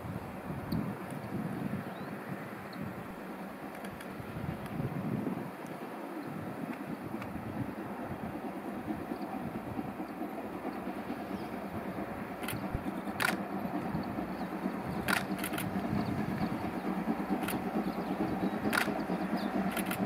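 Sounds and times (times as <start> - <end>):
distant steam locomotive exhaust: 0.0 - 20.0
short sharp clicks: 12.4 - 13.4, 15.0 - 15.8, 18.7 - 19.1, 19.7 - 20.0.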